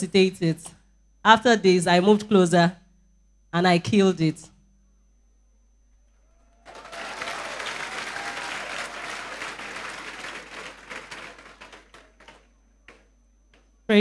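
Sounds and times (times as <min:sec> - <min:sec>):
congregation applauding: 0:06.5 - 0:13.1.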